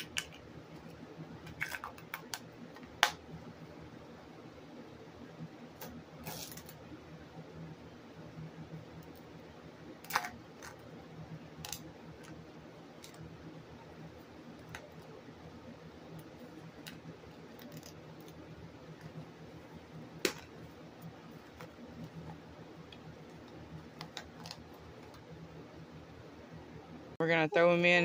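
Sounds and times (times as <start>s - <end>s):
duct tape crinkling: 16.2s - 18.4s.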